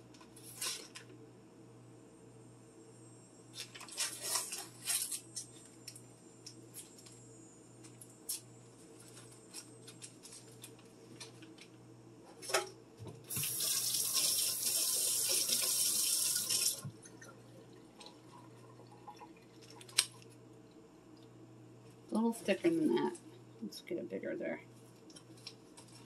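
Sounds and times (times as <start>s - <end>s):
kitchen tap running: 13.3s - 20.1s.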